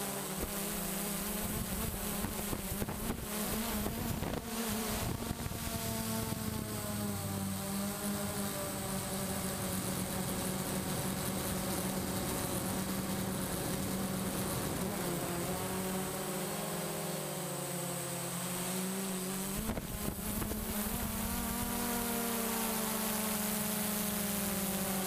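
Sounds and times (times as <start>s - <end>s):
drone propellers buzzing: 0.0s - 25.0s
rush of wind: 1.4s - 7.0s, 19.4s - 21.8s.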